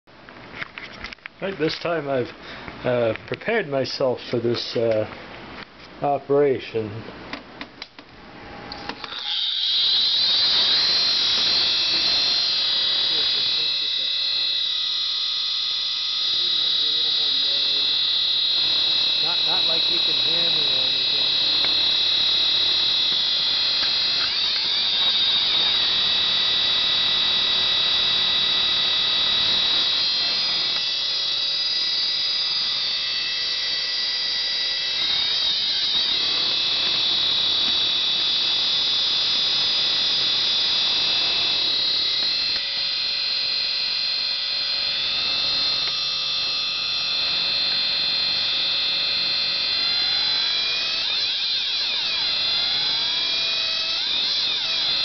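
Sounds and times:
hard drive high-pitched screech: 8.8 - 55.0.

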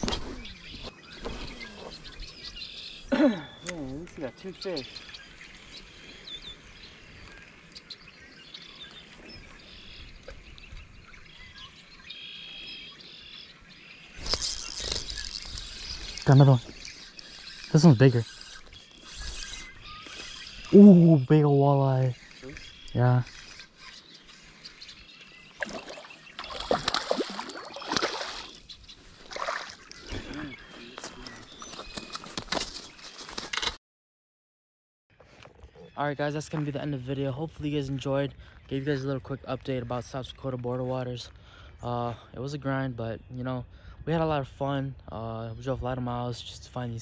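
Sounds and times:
birds chirping: 0.0 - 33.8, 35.1 - 47.0
fish splashing in water: 25.6 - 28.6, 29.2 - 30.0.

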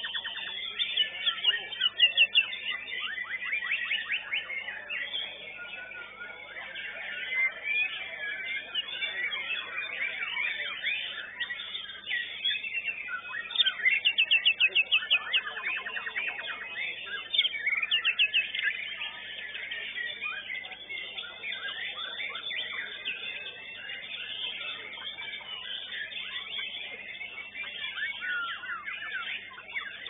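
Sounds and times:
birds whistling and trilling: 0.0 - 30.0.

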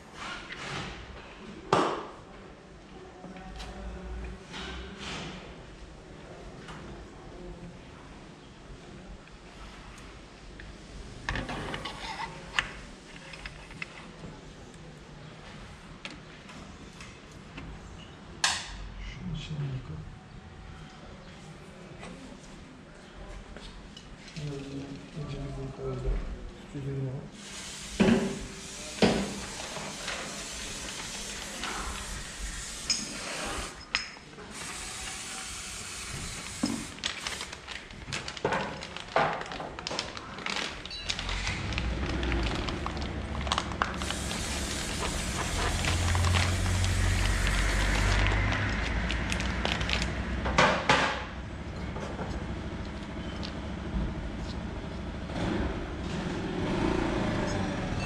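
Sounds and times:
steady hiss: 27.4 - 33.8, 44.0 - 48.3.

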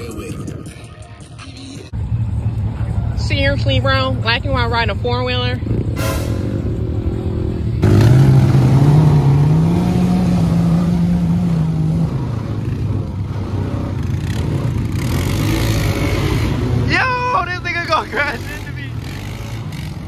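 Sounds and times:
atv engine revving: 3.2 - 20.0.

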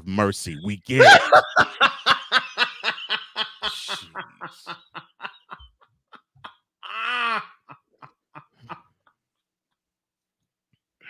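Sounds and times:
man laughing in breathy bursts: 0.9 - 9.2
high squeal of laughter: 6.8 - 8.8.

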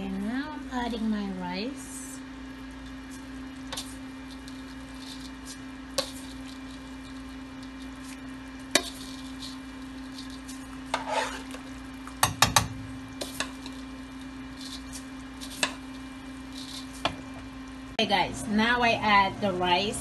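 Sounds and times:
steady low hum: 0.0 - 20.0
spoon knocking and scraping metal pan: 12.2 - 13.8.

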